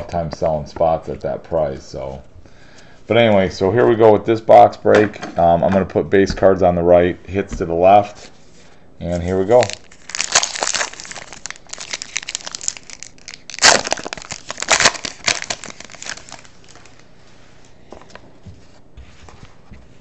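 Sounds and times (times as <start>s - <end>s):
card pack wrapper tearing: 9.5s - 17.0s.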